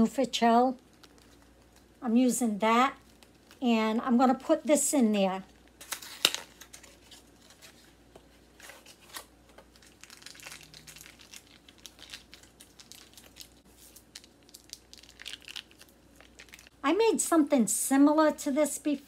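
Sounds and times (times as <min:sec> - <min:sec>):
wrapper crinkling: 0:00.6 - 0:02.0, 0:02.9 - 0:03.7, 0:05.4 - 0:16.8.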